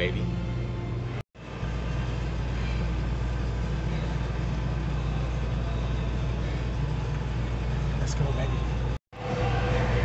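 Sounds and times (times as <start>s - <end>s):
treadmill motor and belt rumble: 0.0s - 10.0s.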